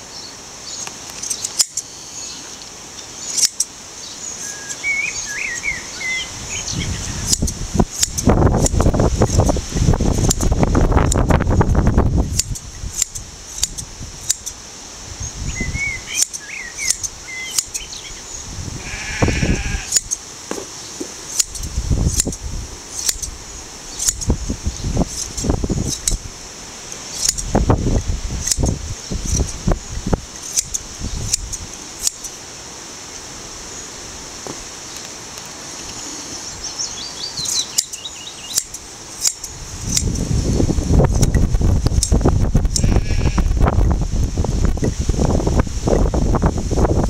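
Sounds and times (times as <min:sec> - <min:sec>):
wind rumbling on microphone: 0:05.2 - 0:32.0, 0:38.2 - 0:47.0
hand shears snipping fleece: 0:07.2 - 0:11.4, 0:12.3 - 0:14.6, 0:16.2 - 0:17.8, 0:19.8 - 0:23.3, 0:24.0 - 0:24.3, 0:25.0 - 0:26.2, 0:26.9 - 0:27.5, 0:28.4 - 0:29.6, 0:30.4 - 0:32.4, 0:37.5 - 0:40.2
sheep bleating: 0:18.8 - 0:20.0, 0:42.8 - 0:43.6.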